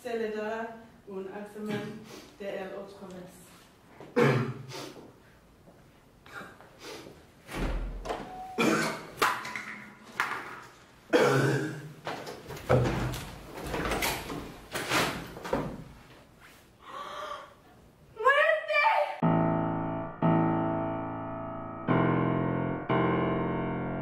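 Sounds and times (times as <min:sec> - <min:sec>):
man coughing and gagging: 0:04.1 - 0:04.7, 0:08.6 - 0:09.1, 0:11.1 - 0:12.0.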